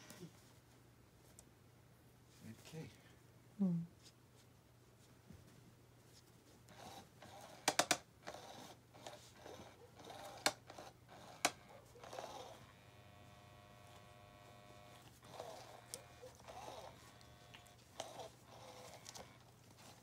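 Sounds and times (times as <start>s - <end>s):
small electric motor whirring: 6.7s - 19.5s
plastic toy clicks and rustling: 6.8s - 9.2s.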